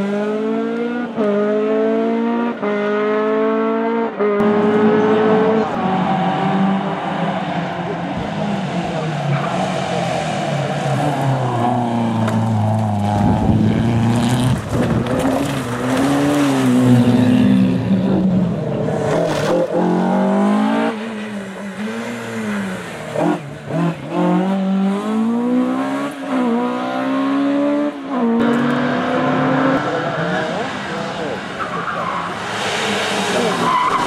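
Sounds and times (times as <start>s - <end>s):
rally car engines at full throttle: 0.0s - 34.0s.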